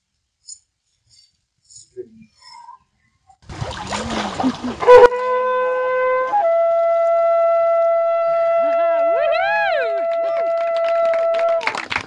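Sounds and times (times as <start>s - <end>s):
water splashing: 3.4s - 7.0s
blown horn long note: 4.7s - 11.8s.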